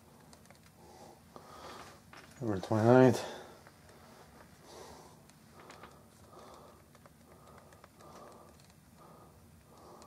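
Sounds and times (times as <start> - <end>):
quick rhythmic breathing: 0.0 - 2.1, 3.1 - 10.0
faint clicks: 5.2 - 10.0.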